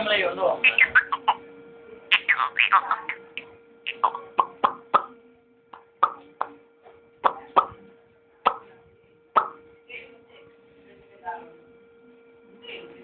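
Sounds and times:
faint steady hum: 0.0 - 13.0
mouth clicks and pops: 3.0 - 5.1, 9.4 - 9.6.

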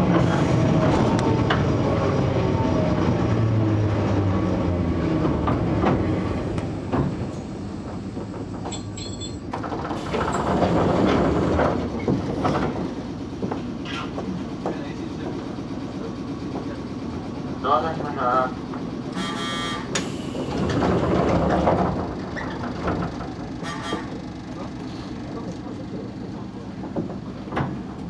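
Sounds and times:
wheels clicking over rail joints: 5.2 - 15.0, 19.9 - 24.2.

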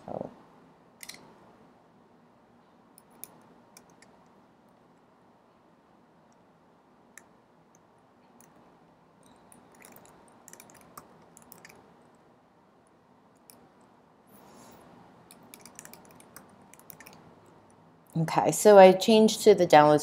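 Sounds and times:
soft hiss: 0.0 - 19.2
keyboard typing: 3.0 - 4.2, 9.2 - 11.9, 13.3 - 13.7, 15.3 - 17.6.

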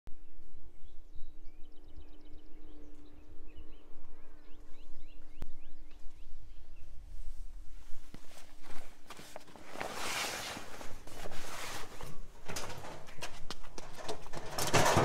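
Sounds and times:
steady low hum: 0.2 - 9.8
bird chirps: 0.8 - 7.0.

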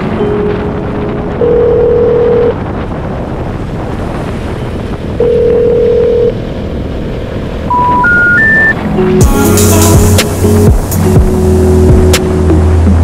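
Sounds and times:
steady single-pitch tones: 0.0 - 2.6, 7.7 - 9.1
wind rushing over microphone: 0.0 - 13.0.

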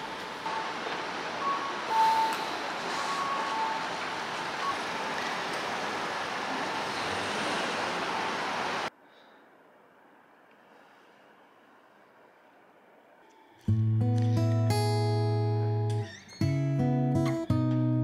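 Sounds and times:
traffic noise: 0.0 - 13.7.

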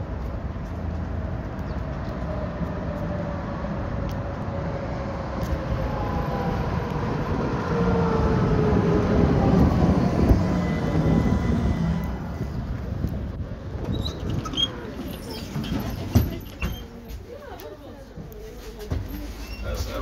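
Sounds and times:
tram wheels rumbling on rails: 0.0 - 20.0
tram whine falling in pitch: 5.8 - 12.4
tram clunk: 6.9 - 17.3.

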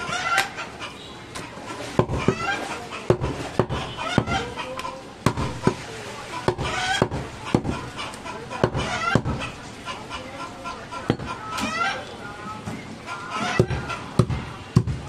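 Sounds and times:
cleaver chopping on wooden block: 5.2 - 5.8.

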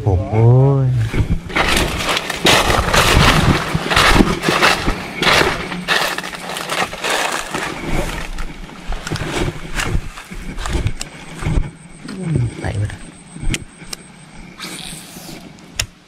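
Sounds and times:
footsteps crunching dry leaves: 1.5 - 10.8.

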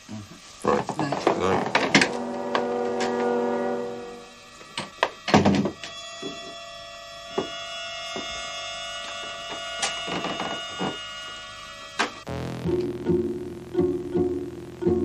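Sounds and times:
faint drone of held tones: 1.5 - 4.8.

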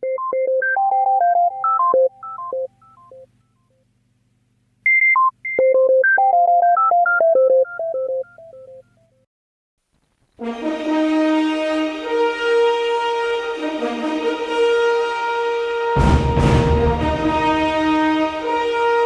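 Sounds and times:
electronic ringtone melody: 0.0 - 3.3, 5.5 - 9.0.

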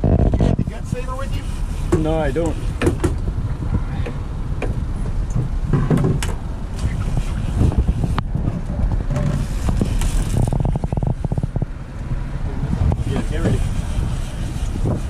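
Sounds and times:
outboard motors low rumble: 0.0 - 15.0
knocks: 2.8 - 3.2, 4.0 - 6.4.

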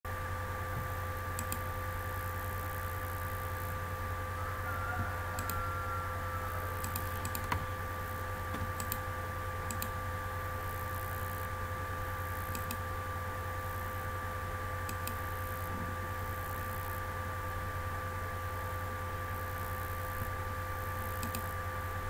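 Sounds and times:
faint whine: 0.1 - 22.0
low electrical hum: 0.1 - 22.0
computer keyboard clicks: 1.4 - 1.6, 6.8 - 7.7, 8.5 - 9.0, 9.6 - 9.9, 12.5 - 12.8, 14.9 - 15.2, 21.2 - 21.5.

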